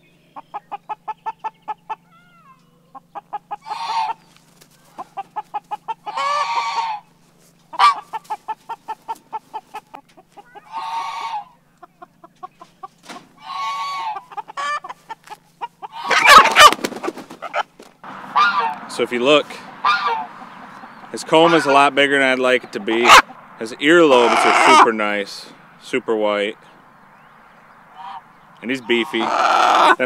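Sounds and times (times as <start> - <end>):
chickens clucking: 0.0 - 30.0
chicken squawks: 0.4 - 7.1, 7.7 - 17.7, 18.3 - 18.9, 19.7 - 22.0, 22.7 - 23.4, 24.0 - 24.9, 27.9 - 30.0
wing flapping: 4.1 - 6.0, 14.9 - 18.0.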